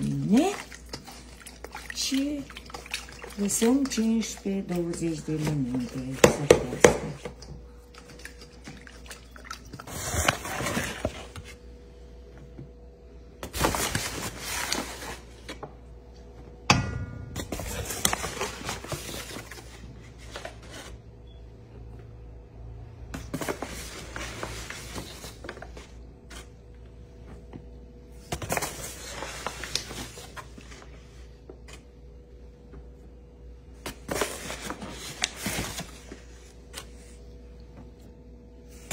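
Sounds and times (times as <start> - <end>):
paper bag rustling: 17.5 - 21.0.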